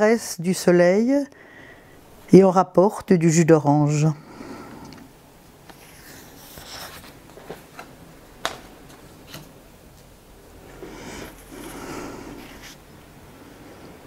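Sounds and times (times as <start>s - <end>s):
paper rustling on wooden table: 5.7s - 9.6s.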